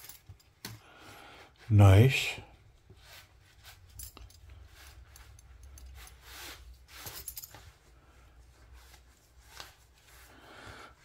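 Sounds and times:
belt buckle clicks and clinks: 0:00.0 - 0:00.7, 0:03.9 - 0:06.2.

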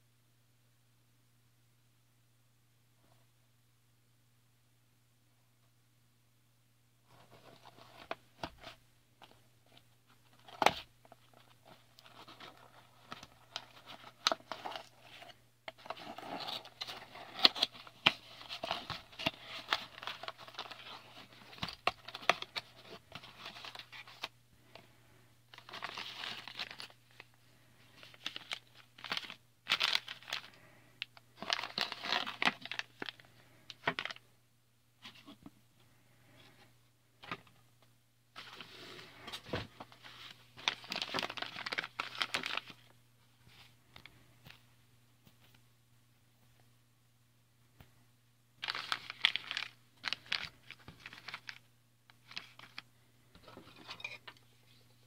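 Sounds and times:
plastic bags crinkling: 0:10.3 - 0:24.3, 0:25.5 - 0:27.3, 0:28.0 - 0:34.2, 0:40.2 - 0:42.9, 0:48.6 - 0:51.6.

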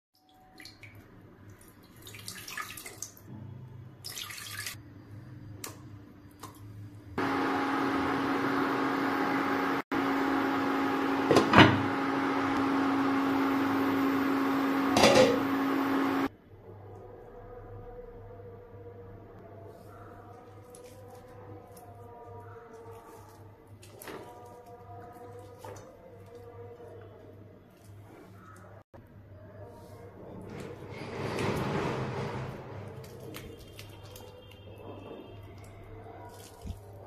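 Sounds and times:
water pouring into pot: 0:04.0 - 0:04.8.

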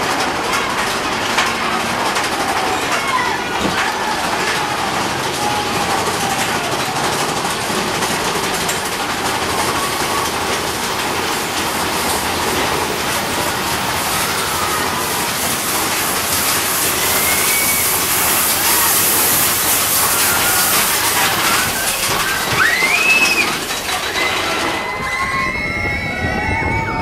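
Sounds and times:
roller coaster rattling on track: 0:00.0 - 0:27.0
falling water hissing: 0:09.1 - 0:24.2.

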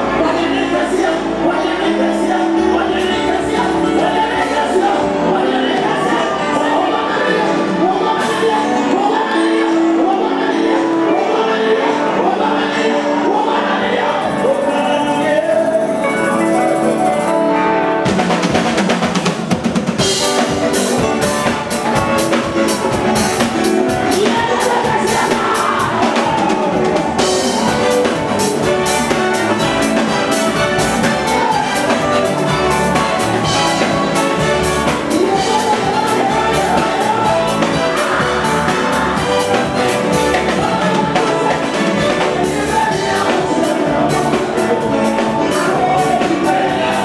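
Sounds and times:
gospel singing with band: 0:00.0 - 0:47.0
drums beating: 0:18.0 - 0:47.0.

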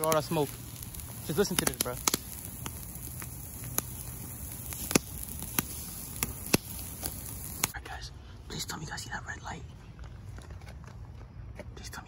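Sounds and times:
campfire crackling and popping: 0:00.0 - 0:07.8.

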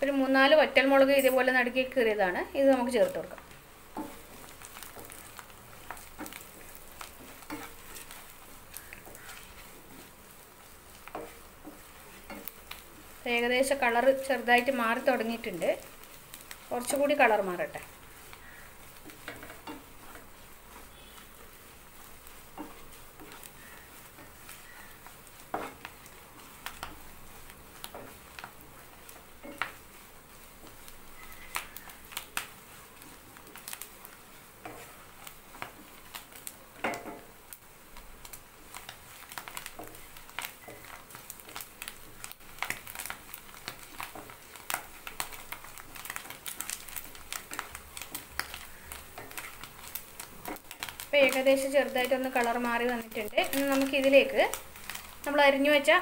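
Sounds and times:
food sizzling in oil: 0:00.0 - 0:56.0
wooden spatula scraping pan: 0:03.0 - 0:37.6.

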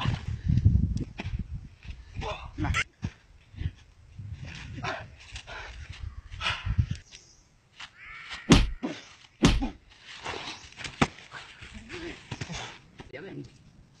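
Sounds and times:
loud whacking blows: 0:08.5 - 0:08.8, 0:09.4 - 0:09.8.

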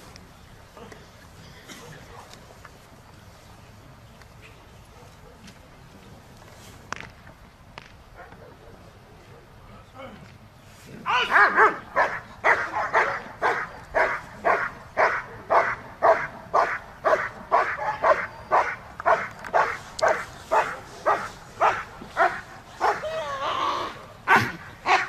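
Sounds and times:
dog barking: 0:11.1 - 0:23.1, 0:24.3 - 0:25.0.

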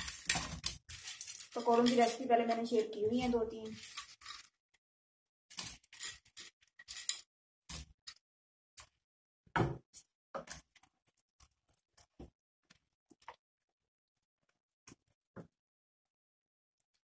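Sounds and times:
wooden spoon stirring pot: 0:00.0 - 0:04.6, 0:09.8 - 0:13.4.

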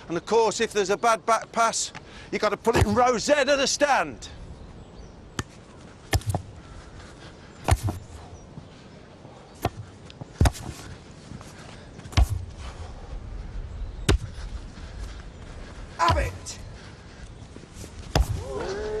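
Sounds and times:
football kicks: 0:05.4 - 0:06.5, 0:07.6 - 0:08.0, 0:10.4 - 0:10.8, 0:12.1 - 0:12.5, 0:14.0 - 0:14.4, 0:16.0 - 0:16.5, 0:18.0 - 0:18.7.

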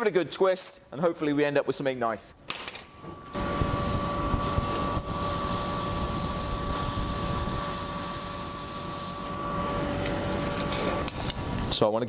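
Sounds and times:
steady hum and low rumble: 0:03.2 - 0:11.7.

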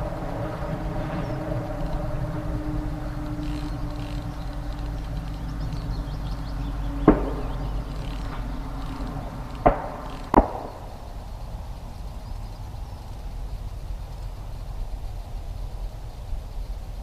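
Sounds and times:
low background rumble: 0:00.0 - 0:17.0
sharp ringing knocks: 0:07.0 - 0:08.4, 0:09.5 - 0:10.8.

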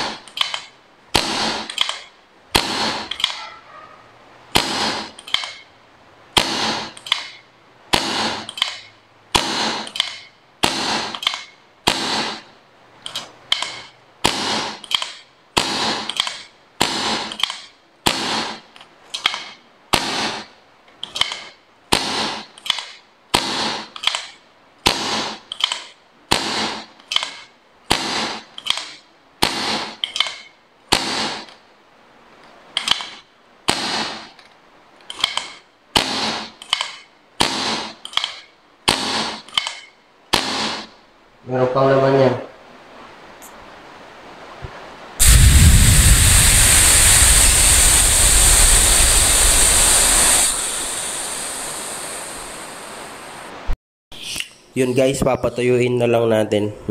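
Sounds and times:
hand air pump strokes: 0:46.2 - 0:52.4.

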